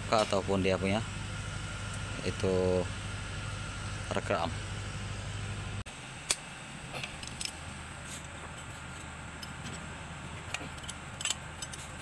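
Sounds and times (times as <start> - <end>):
steady low hum: 0.0 - 12.0
spanner clicking on metal: 10.5 - 12.0.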